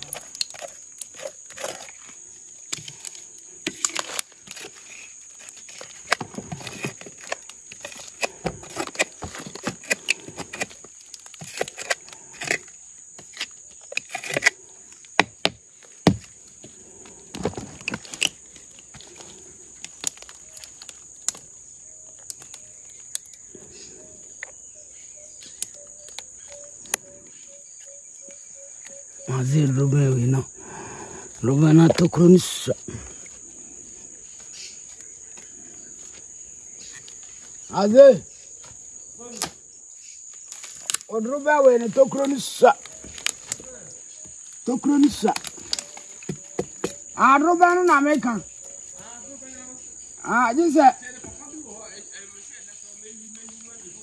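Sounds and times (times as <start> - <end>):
blade chopping and scraping wood: 0.0 - 21.0, 44.8 - 47.1
insects shrilling: 0.0 - 54.0.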